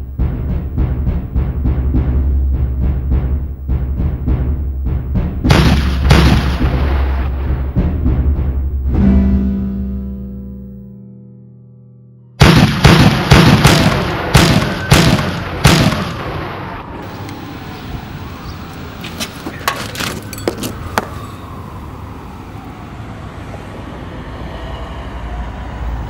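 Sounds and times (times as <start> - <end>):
pistol shots ringing: 12.4 - 16.2.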